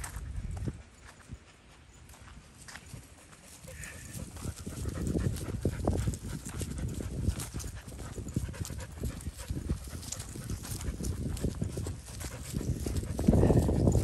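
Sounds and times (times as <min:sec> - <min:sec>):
footsteps on grass: 0:00.0 - 0:14.0
leash and handling rustle: 0:00.0 - 0:14.0
dog panting: 0:03.0 - 0:14.0.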